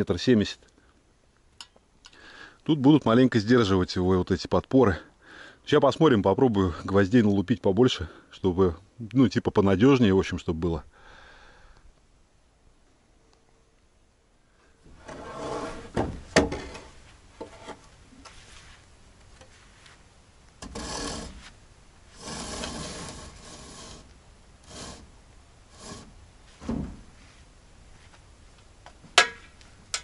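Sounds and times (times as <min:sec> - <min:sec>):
wood scraping against wood: 0:14.8 - 0:20.0, 0:20.6 - 0:25.1, 0:25.7 - 0:27.5.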